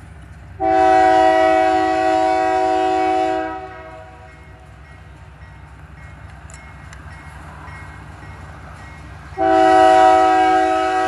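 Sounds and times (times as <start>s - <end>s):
locomotive air horn: 0.6s - 4.3s, 9.4s - 11.0s.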